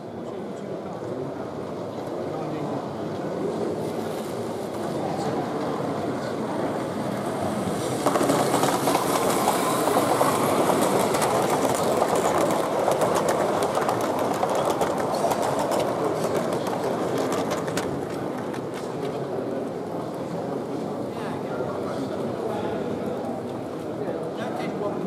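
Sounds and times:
model steam train running past: 0.0s - 25.0s
wheels clicking over rail joints: 7.8s - 19.1s.

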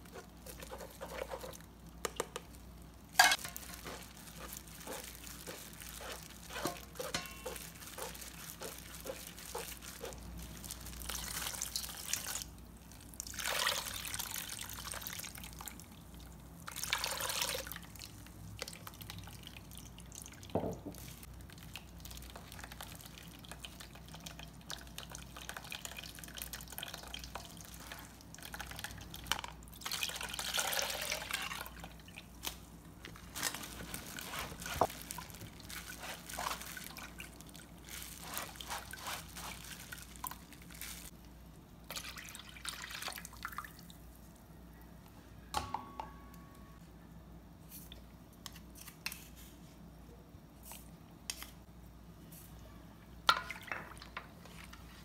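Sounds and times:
wet squishing: 3.6s - 15.8s, 21.5s - 41.2s.

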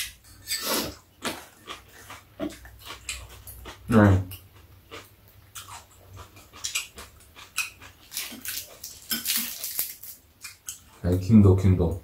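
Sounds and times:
chewing and slurping noodles: 0.6s - 3.9s, 4.9s - 9.4s.

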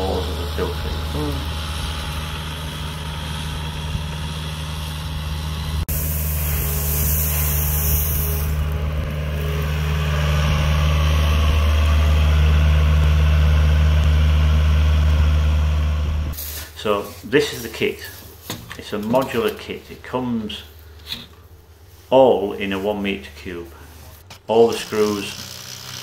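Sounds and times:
diesel engine running: 0.0s - 16.4s, 24.0s - 26.0s.

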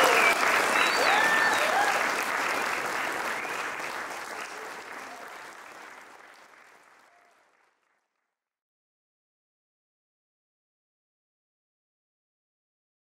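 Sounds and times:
crowd clapping and cheering: 0.0s - 8.4s.

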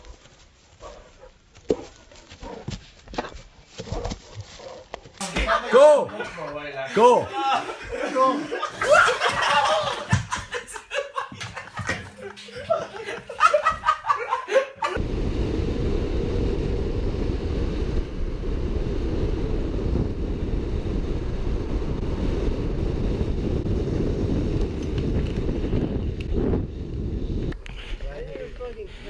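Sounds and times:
young men laughing: 5.2s - 15.0s
wind buffeting microphone: 15.0s - 29.0s.

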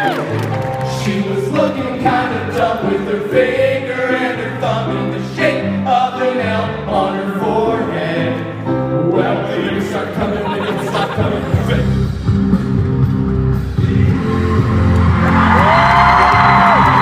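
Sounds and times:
men singing into microphones: 0.9s - 12.0s.

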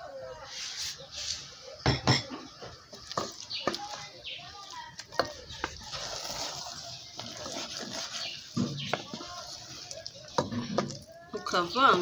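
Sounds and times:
spoon stirring rice in pot: 2.5s - 11.5s.

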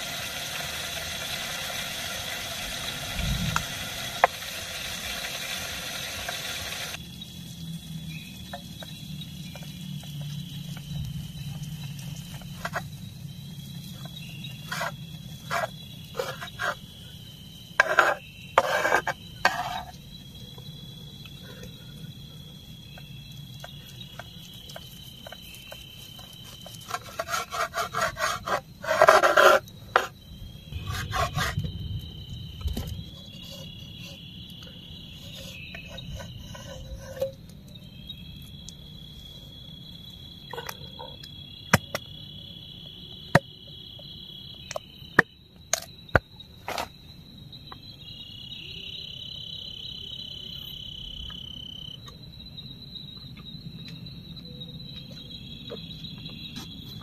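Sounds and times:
night insects chirping: 0.0s - 57.0s
knife scraping: 14.6s - 16.8s, 17.8s - 20.0s, 26.4s - 30.1s, 30.8s - 31.7s, 35.1s - 37.4s.

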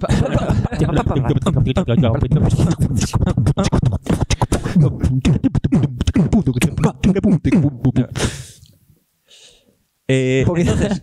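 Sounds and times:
man beatboxing: 0.8s - 8.2s.

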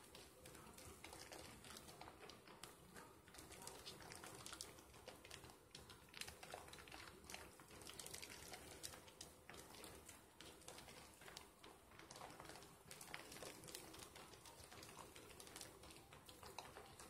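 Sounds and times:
soap lather squishing: 0.0s - 17.0s.

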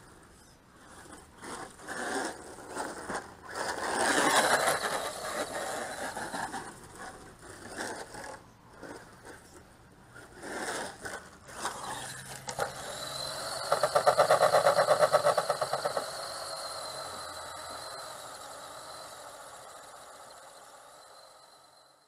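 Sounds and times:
steady high whine: 0.0s - 22.0s
rc truck motor revving: 0.2s - 22.0s
tyres spinning: 0.9s - 9.5s, 10.1s - 21.5s
loud rapid pulsing: 11.6s - 21.6s.

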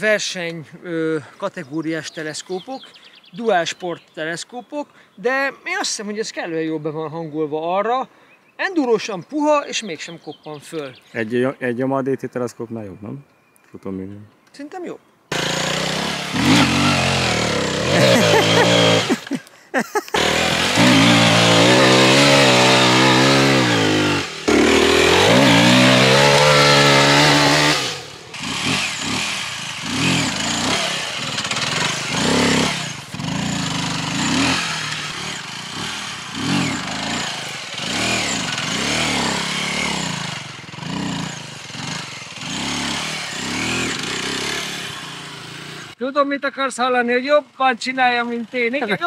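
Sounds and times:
motorcycle engine revving: 15.3s - 19.3s, 20.2s - 46.0s.

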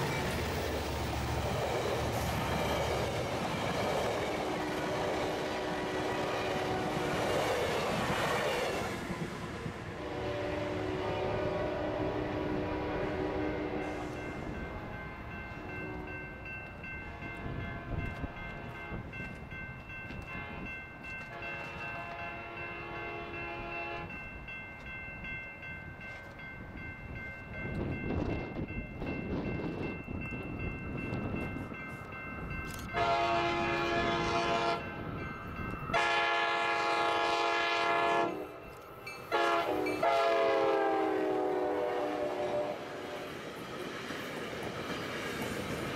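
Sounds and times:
train rumbling: 0.0s - 45.9s
distant train horn: 4.4s - 7.3s, 9.8s - 16.4s, 17.0s - 19.0s, 20.2s - 24.2s, 32.7s - 35.0s, 35.9s - 43.3s.

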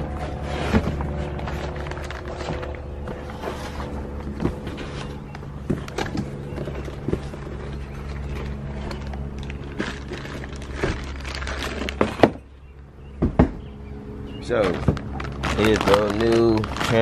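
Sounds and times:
cardboard scraping: 0.0s - 12.4s
low hum: 0.0s - 17.0s
plastic wrap crinkling: 6.6s - 12.0s, 14.8s - 17.0s.

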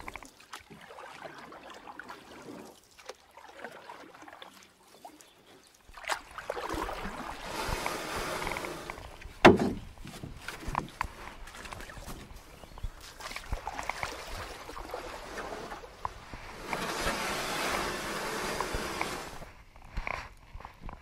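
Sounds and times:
paddle splashing water: 0.0s - 19.6s
wash of water and rumble: 6.2s - 9.4s, 11.4s - 19.6s.

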